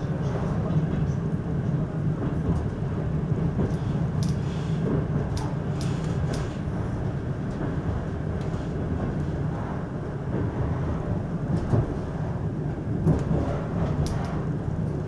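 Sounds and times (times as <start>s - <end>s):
train carriage rumbling on rails: 0.0s - 15.0s.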